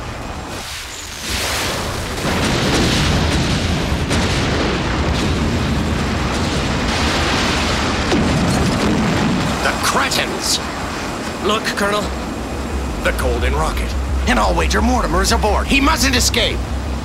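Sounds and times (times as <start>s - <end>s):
large explosion boom and rumble: 1.3s - 10.8s.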